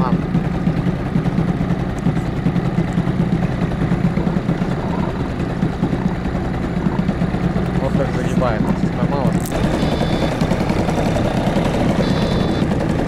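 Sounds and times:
outboard motor running: 0.0 - 13.0
water and air noise: 0.0 - 13.0.

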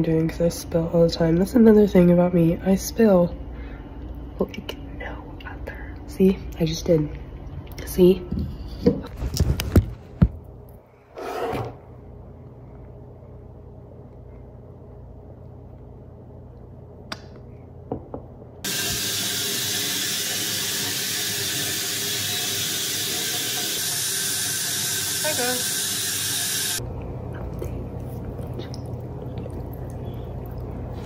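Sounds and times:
low room hum: 0.0 - 31.0
water running into bathtub: 18.6 - 26.8.

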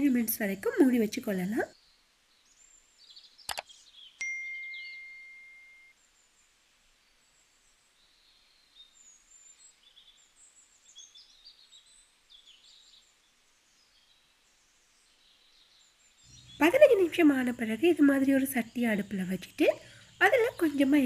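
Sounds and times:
faint bird chirps: 0.0 - 21.0
high ringing ding: 4.2 - 5.9.

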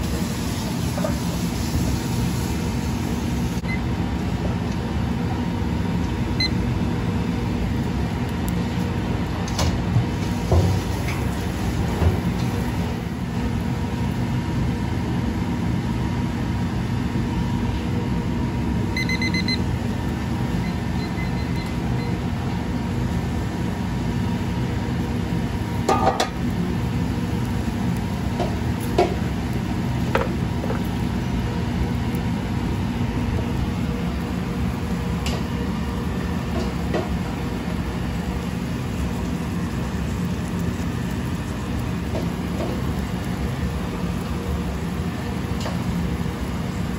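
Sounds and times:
kitchen range and ventilation hum: 0.0 - 46.9
food simmering in a pan: 0.1 - 46.9
short electronic beep: 19.0 - 19.6.

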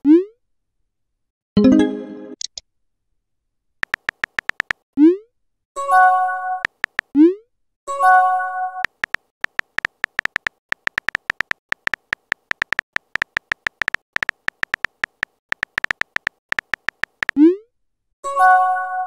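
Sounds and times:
phone keyboard typing clicks: 3.8 - 4.8, 6.6 - 7.1, 8.8 - 17.4.

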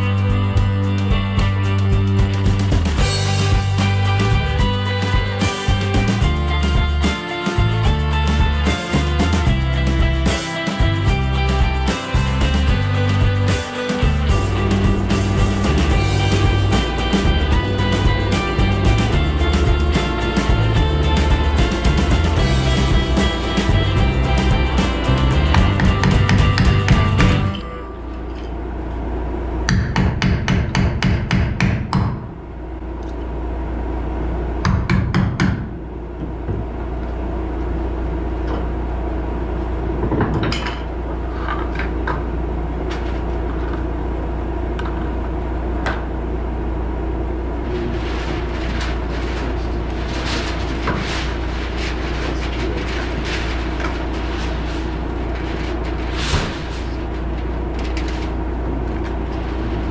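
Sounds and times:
low machine hum: 0.0 - 59.9
knocks and clatter: 15.6 - 27.6.

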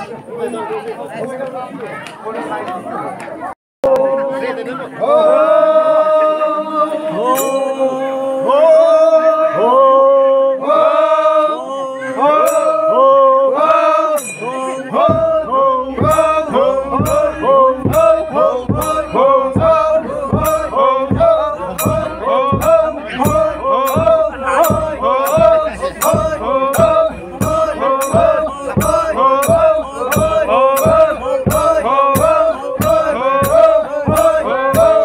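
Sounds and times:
men chanting in unison: 3.9 - 35.0
sharp metallic clinks: 7.4 - 7.8
barrel drum struck with mallet: 15.0 - 35.0.

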